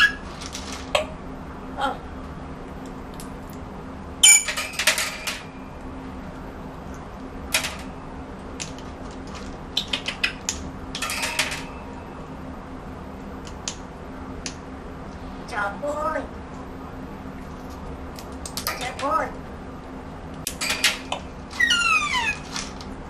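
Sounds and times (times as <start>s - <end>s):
faint steady hum: 0.0s - 23.0s
parrot clicking and clacking: 8.7s - 11.6s.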